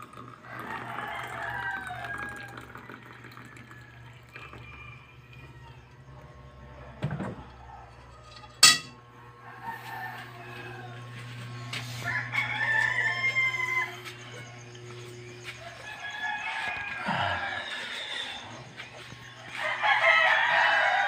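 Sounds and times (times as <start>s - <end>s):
liquid poured into mug: 0.0s - 4.7s
low steady hum: 5.0s - 16.0s.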